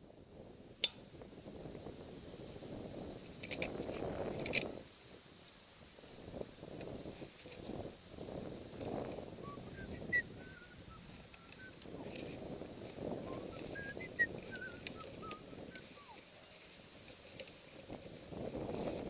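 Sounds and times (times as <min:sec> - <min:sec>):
wind buffeting microphone: 0:00.0 - 0:05.2, 0:05.8 - 0:19.0
faint clicks: 0:10.5 - 0:19.0.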